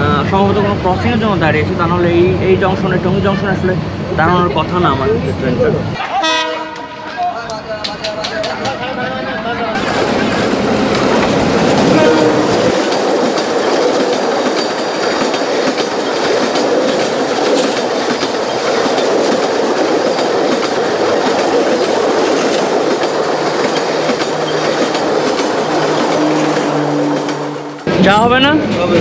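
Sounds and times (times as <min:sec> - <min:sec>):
train wheels clattering over rail joints: 0:09.8 - 0:29.0.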